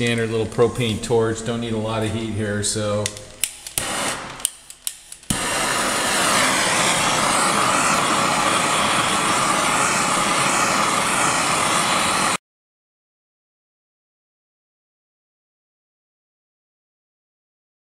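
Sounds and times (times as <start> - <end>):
sharp clicks: 3.0 - 5.4
propane torch hissing: 3.1 - 12.4.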